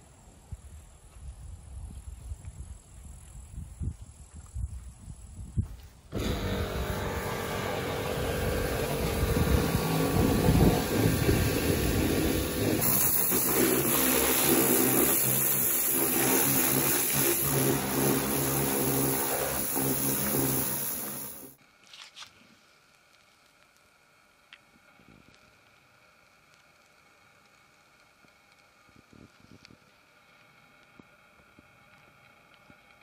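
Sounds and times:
pressure washer motor hum: 6.1 - 21.6
water jet hissing on wood: 6.2 - 21.6.

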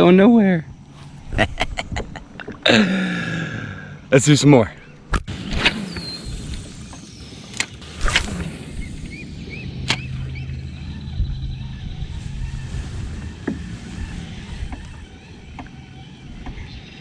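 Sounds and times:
fishing reel gears humming: 5.7 - 17.0.

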